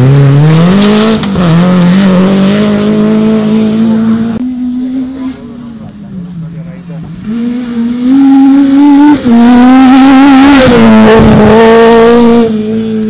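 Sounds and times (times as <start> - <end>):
car engine at full throttle: 0.0 - 13.0.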